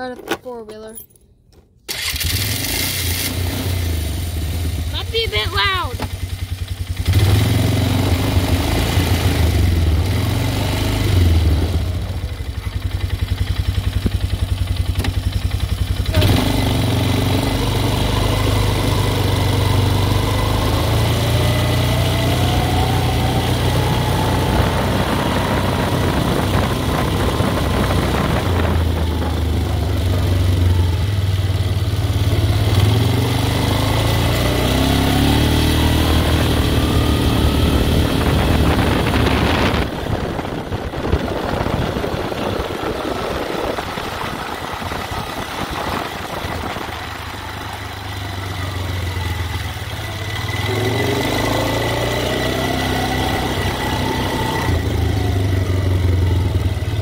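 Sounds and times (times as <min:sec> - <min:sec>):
atv engine revving: 0:01.9 - 0:57.0.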